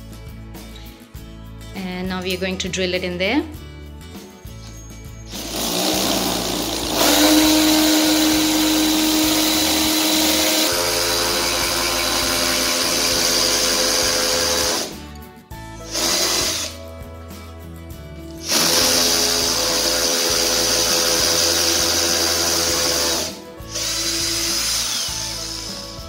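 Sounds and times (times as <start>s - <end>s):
cordless drill whining: 4.6s - 15.0s, 15.8s - 16.8s, 18.4s - 26.0s.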